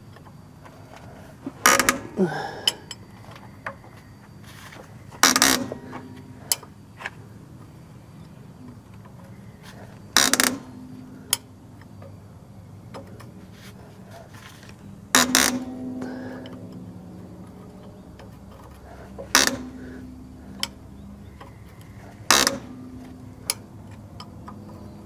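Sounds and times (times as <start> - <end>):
loud metallic clunks ringing: 1.5 - 3.9, 5.0 - 6.8, 9.4 - 13.2, 14.8 - 25.0.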